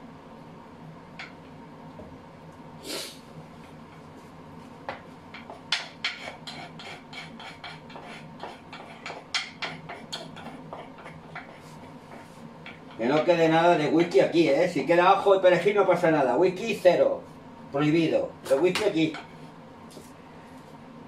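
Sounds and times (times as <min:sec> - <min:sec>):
metal spoon scraping a bowl: 0:05.9 - 0:11.7.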